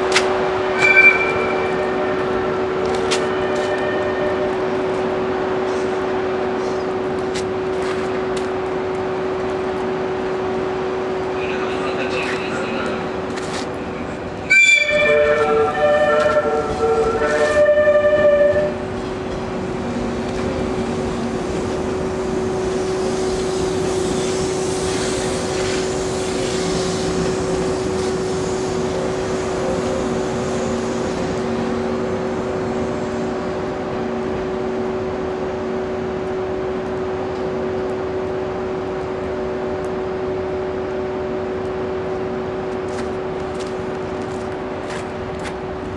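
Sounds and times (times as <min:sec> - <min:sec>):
train running slowly past: 0:00.0 - 0:45.9
hiss: 0:22.6 - 0:31.4.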